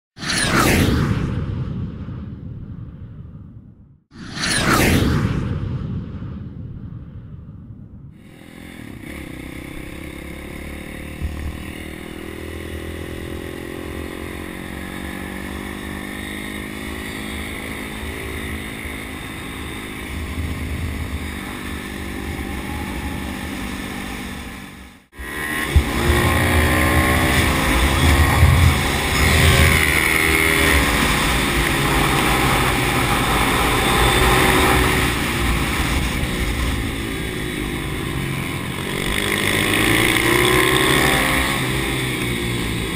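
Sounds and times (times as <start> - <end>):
pit bike engine revving: 8.2 - 42.9
wind noise: 20.0 - 24.3, 25.3 - 38.9.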